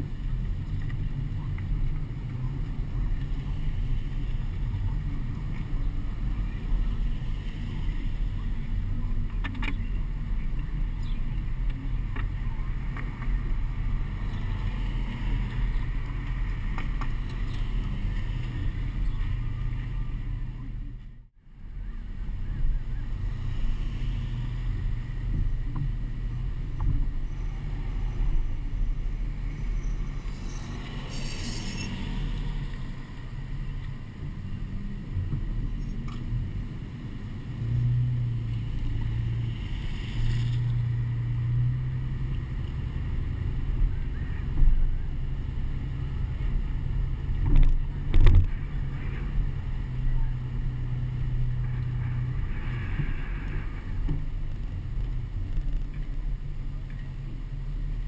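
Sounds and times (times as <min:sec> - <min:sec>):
wind and road noise: 0:00.0 - 0:58.0.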